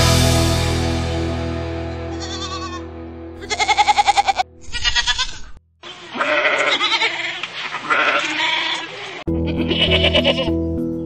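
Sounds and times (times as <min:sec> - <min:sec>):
background music: 0:00.0 - 0:03.6, 0:09.3 - 0:11.0
goats bleating: 0:02.1 - 0:10.6.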